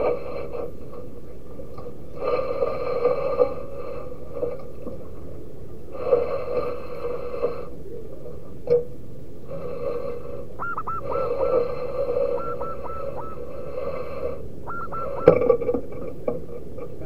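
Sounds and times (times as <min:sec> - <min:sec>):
doves cooing: 0:09.4 - 0:17.0
higher dipping bird notes: 0:10.5 - 0:15.7.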